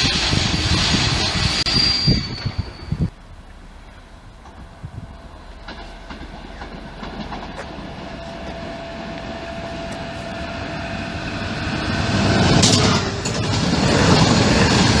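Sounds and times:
train wheels on rails: 0.0 - 15.0
train motor whine: 4.1 - 15.0.

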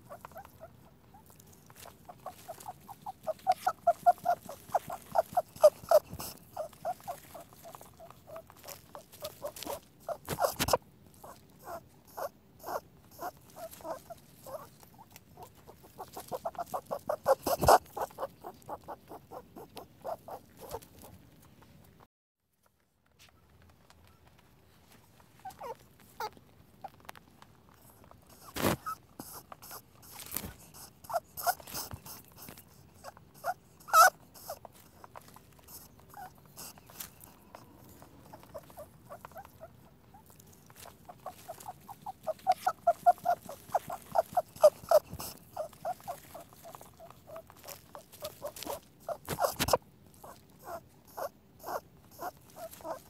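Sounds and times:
rabbit squeaking: 0.0 - 21.7, 25.3 - 27.1, 27.7 - 53.0.

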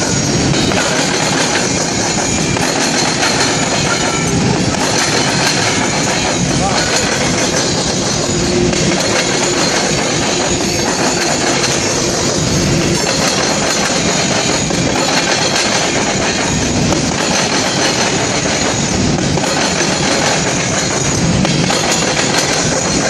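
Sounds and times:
train wheels clattering on rails: 0.0 - 23.0.

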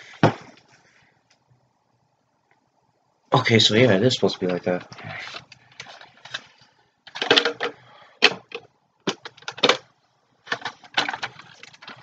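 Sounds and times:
plastic toy parts clicking: 7.1 - 9.8, 10.5 - 12.0.

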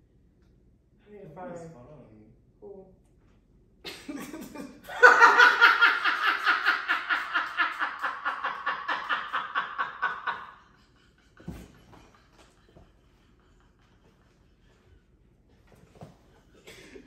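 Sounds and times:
woman laughing hard: 3.9 - 14.8.

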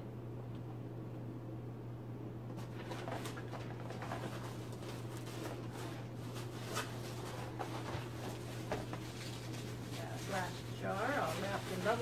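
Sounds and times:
steady low hum: 0.0 - 12.0
packaging rustling in cardboard box: 2.6 - 12.0.

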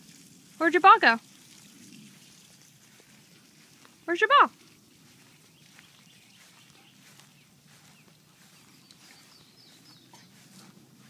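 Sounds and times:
bird chirping faintly: 5.5 - 10.7.

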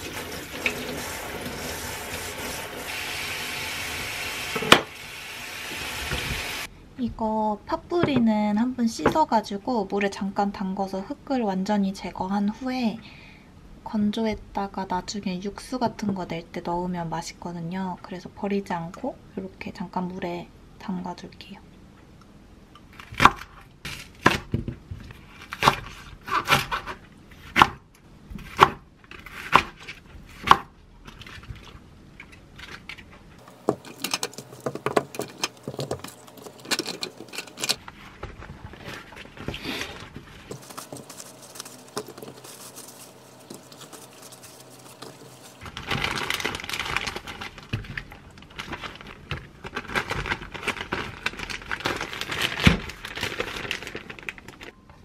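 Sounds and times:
plastic bag crinkling: 33.4 - 54.8
rustling on paper towel: 37.8 - 54.7.

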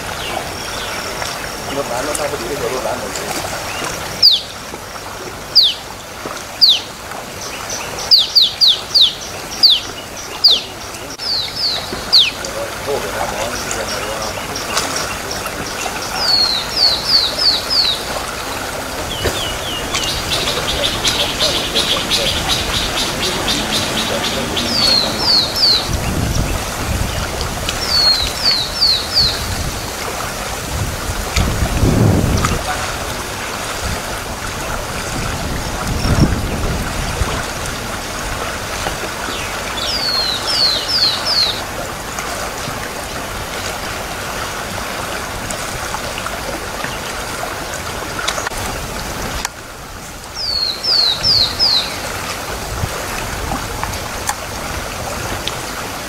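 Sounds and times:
background hiss: 0.0 - 31.2
bird whistling calls: 4.2 - 4.5, 19.1 - 25.9.

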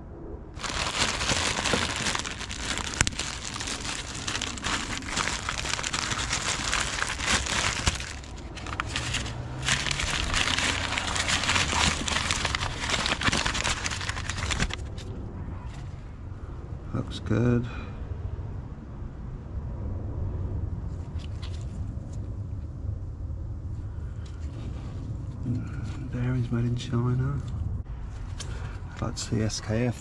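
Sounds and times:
bags crinkling and rustling: 0.6 - 15.0.

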